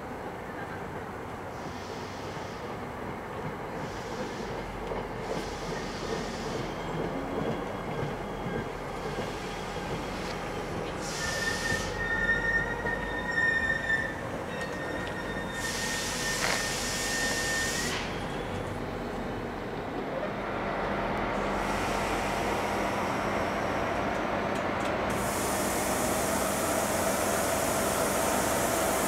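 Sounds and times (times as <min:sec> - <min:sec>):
train rumbling: 0:00.0 - 0:29.0
air hiss bursts: 0:11.0 - 0:12.0, 0:15.6 - 0:18.2, 0:25.1 - 0:29.0
high-pitched brake squeal: 0:11.0 - 0:18.5.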